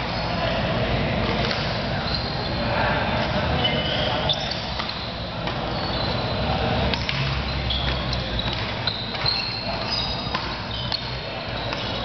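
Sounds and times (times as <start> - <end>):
racket hitting shuttlecock: 1.2 - 1.8, 4.5 - 5.7, 6.8 - 12.0
shoes squeaking on court: 1.3 - 12.0.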